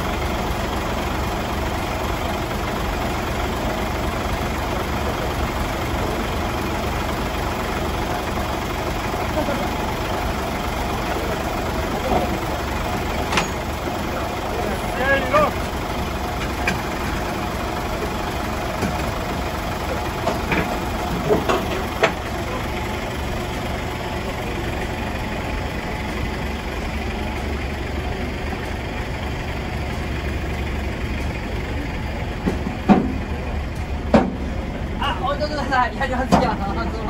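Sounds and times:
truck engine idling: 0.0s - 37.0s.

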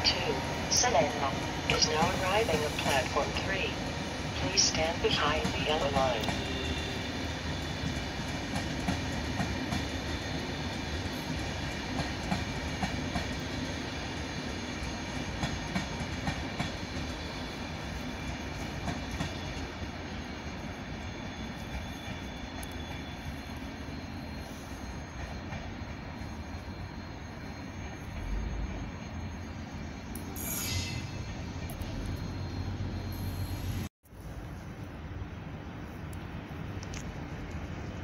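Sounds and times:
train rumbling past: 0.0s - 38.0s
faint high whine: 19.4s - 36.4s.

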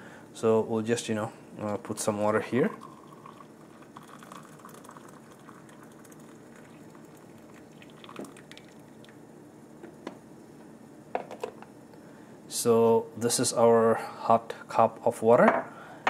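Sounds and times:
water pouring into a mug: 2.3s - 9.2s.

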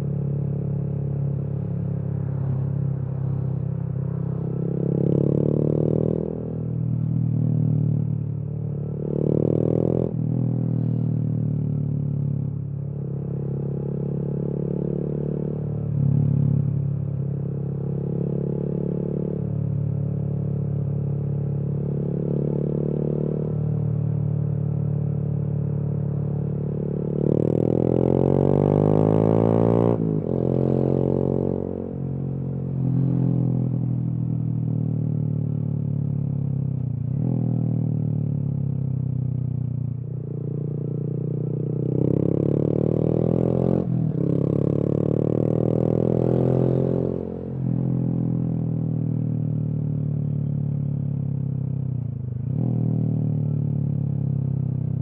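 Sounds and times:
motorcycle engine revving: 40.1s - 49.1s.

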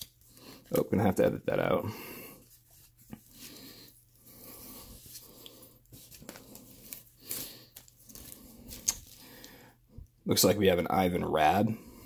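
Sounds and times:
cards rustling in plastic sleeves: 2.4s - 9.6s.

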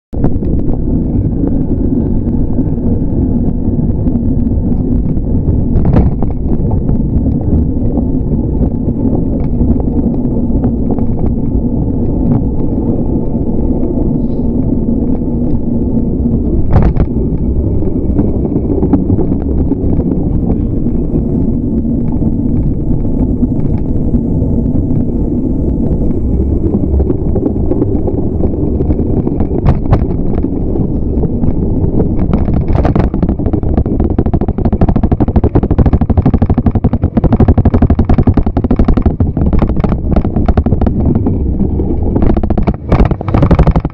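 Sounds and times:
wind buffeting microphone: 0.1s - 43.9s
small clicks and rattles: 0.2s - 15.6s, 16.2s - 43.9s
sharp knocks: 42.2s - 43.9s.

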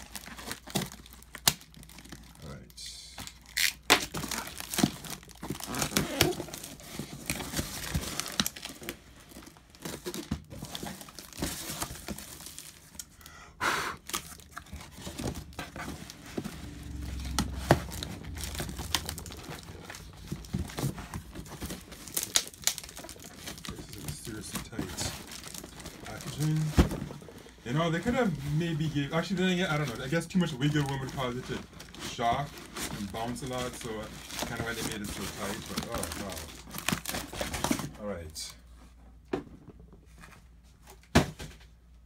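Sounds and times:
packing tape ripping: 3.3s - 8.7s, 16.8s - 26.6s
cardboard tearing and scraping: 3.5s - 12.8s, 14.1s - 37.9s.

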